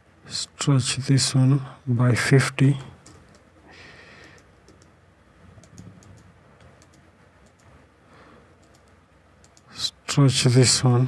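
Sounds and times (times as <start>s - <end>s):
mouse clicks: 4.2s - 4.9s, 5.6s - 7.7s, 8.6s - 9.7s
keyboard keystrokes: 5.6s - 7.7s, 8.6s - 9.6s.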